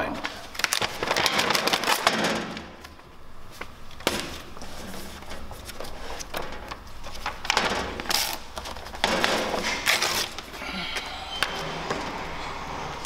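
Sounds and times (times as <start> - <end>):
paper pages rustling: 0.2 - 2.2, 2.8 - 10.6.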